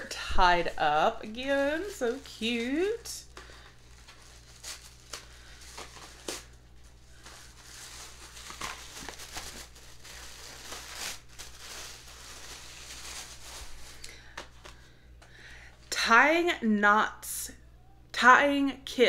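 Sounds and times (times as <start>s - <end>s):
paper crinkling and rustling: 0.1s - 14.8s.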